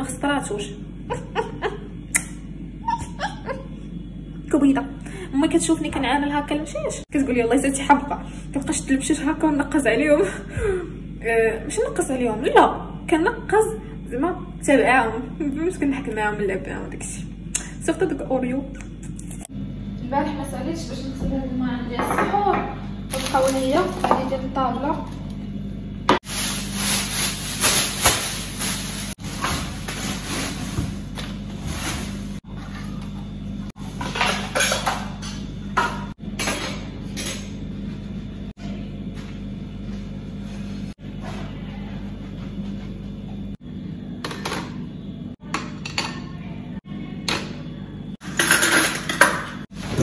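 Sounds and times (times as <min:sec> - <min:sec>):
plastic bag rustling: 0:23.1 - 0:24.4, 0:26.2 - 0:32.4.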